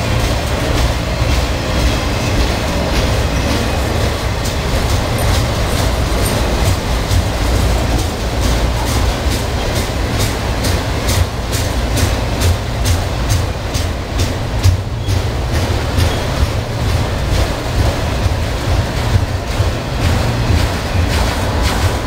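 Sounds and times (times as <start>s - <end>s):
sharp clicks of wheels on track: 0.0s - 22.0s
train wheels rumbling on rail: 0.0s - 22.0s.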